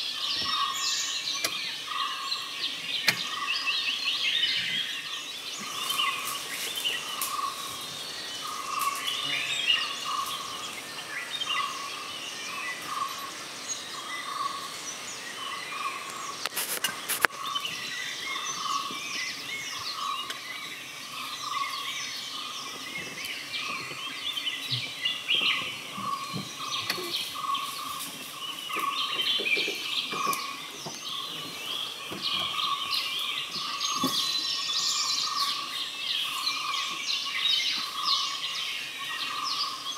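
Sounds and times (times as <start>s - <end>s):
birds chirping and twittering: 0.0s - 39.9s.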